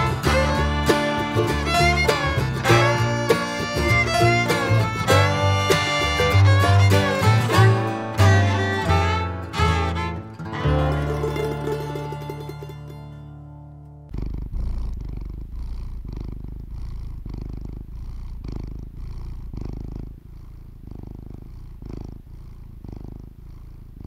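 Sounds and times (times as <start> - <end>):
cat purring: 0.0 - 7.7, 14.1 - 24.0
music chord: 0.0 - 14.1.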